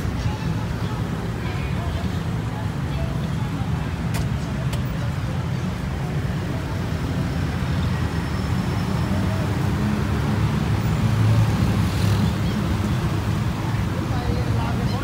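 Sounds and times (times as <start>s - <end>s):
car and scooter engines in traffic: 0.0s - 15.0s.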